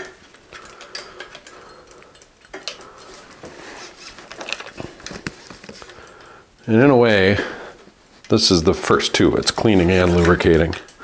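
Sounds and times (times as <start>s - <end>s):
hands clicking and rustling cables: 0.0s - 6.8s, 7.8s - 11.0s.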